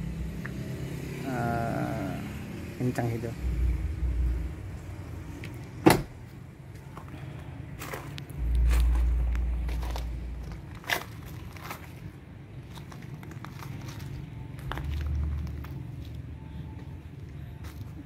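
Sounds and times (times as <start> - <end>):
low rumble: 3.4 - 6.4, 7.7 - 17.6
footsteps on grass: 7.8 - 16.2.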